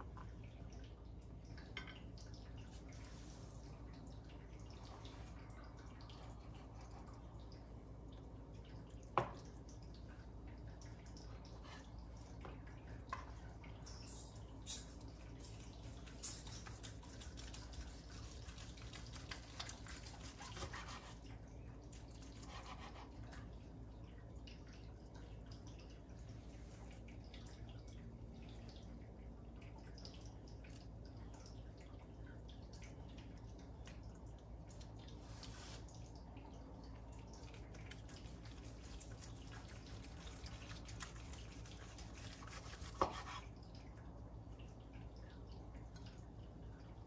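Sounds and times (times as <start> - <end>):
knife slicing and scraping: 38.2 - 43.5.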